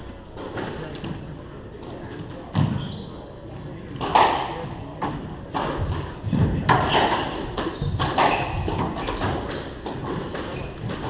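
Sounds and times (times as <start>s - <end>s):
shoes squeaking on wooden floor: 2.6s - 3.2s, 5.8s - 11.0s
squash ball smacking: 5.6s - 11.0s.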